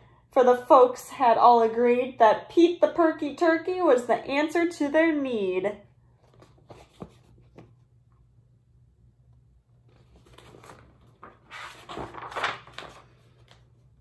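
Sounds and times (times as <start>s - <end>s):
book pages turning: 6.2s - 7.8s, 9.8s - 14.0s.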